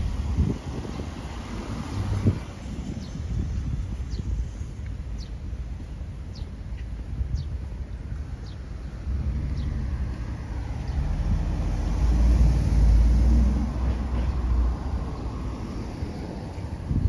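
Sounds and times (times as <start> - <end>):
car driving past: 9.1 - 16.5.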